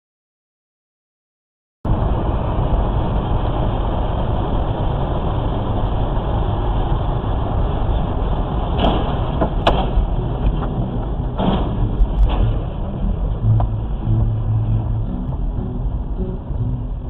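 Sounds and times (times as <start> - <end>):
car road and engine rumble: 1.9 - 17.0
sharp knocks: 8.8 - 12.7.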